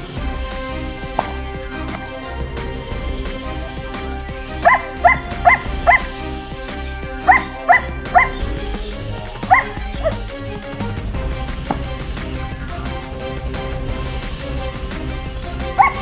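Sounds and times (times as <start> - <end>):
background music: 0.0 - 16.0
dog barking: 4.6 - 6.2, 7.2 - 8.5, 9.4 - 10.2, 15.8 - 16.0.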